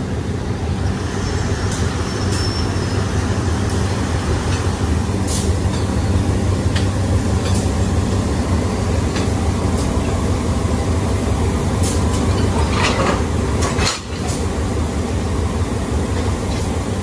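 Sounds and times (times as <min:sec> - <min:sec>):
locomotive engine droning: 0:00.0 - 0:17.0.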